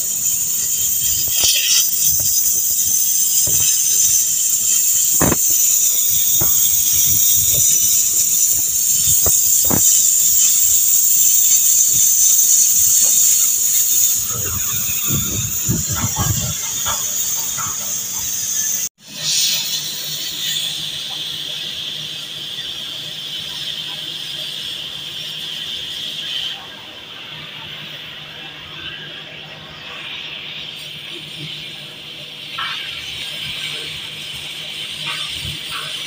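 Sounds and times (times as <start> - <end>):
cutting torch hissing: 0.0 - 36.0
sharp pops and crackles: 0.2 - 18.2.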